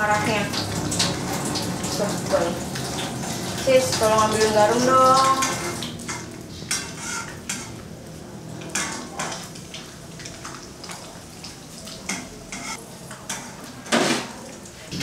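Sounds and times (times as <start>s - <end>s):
food sizzling: 0.0s - 15.0s
utensil scraping a metal pan: 5.3s - 7.8s, 12.1s - 14.3s.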